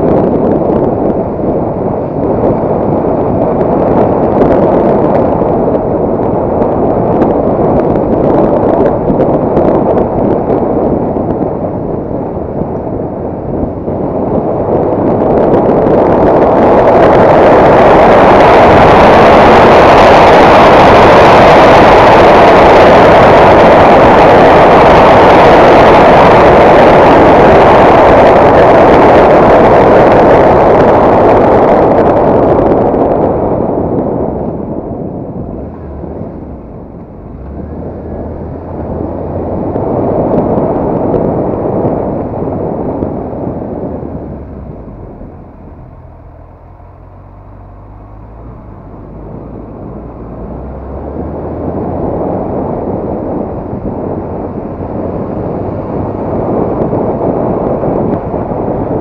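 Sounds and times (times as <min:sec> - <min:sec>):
wind rushing over microphone: 0:00.0 - 0:59.0
motorcycle engine running: 0:32.0 - 0:59.0.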